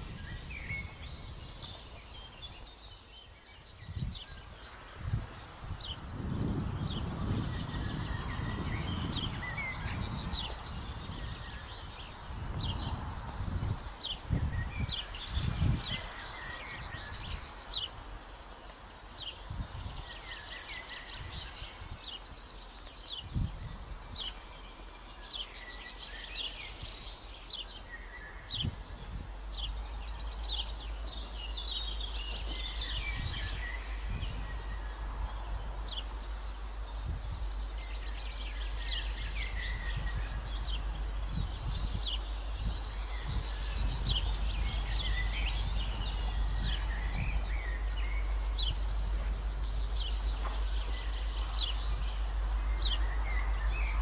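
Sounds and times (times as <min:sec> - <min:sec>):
songbirds chirping and trilling: 0:00.0 - 0:54.0
steady low rumble: 0:26.6 - 0:54.0.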